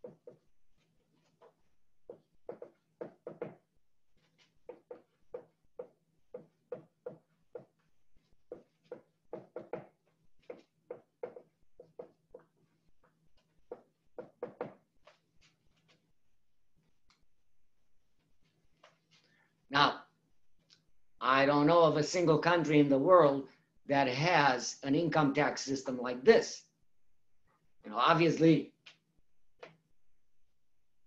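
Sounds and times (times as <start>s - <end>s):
marker writing on whiteboard: 0.0s - 16.2s, 18.1s - 19.3s, 28.7s - 29.9s.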